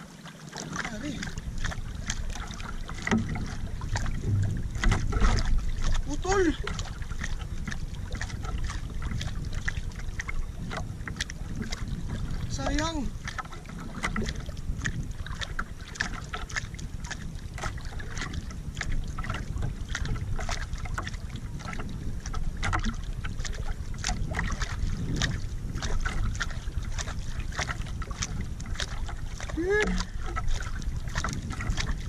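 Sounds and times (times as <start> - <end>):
water splashing against canoe hull: 0.0 - 32.0
wind rumble on microphone: 0.6 - 32.0.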